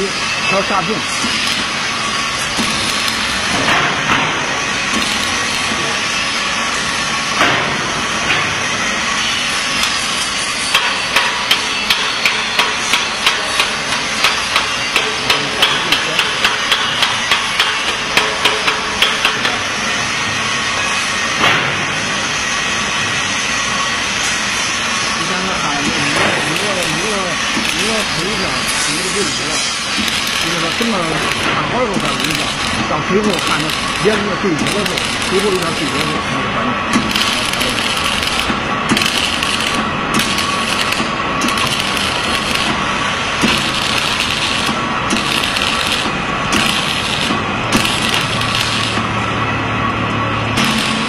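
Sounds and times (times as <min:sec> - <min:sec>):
workshop noise hiss: 0:00.0 - 0:51.0
rapid hammer blows: 0:02.5 - 0:05.8, 0:10.7 - 0:19.6, 0:25.8 - 0:36.3, 0:36.9 - 0:49.1, 0:50.5 - 0:51.0.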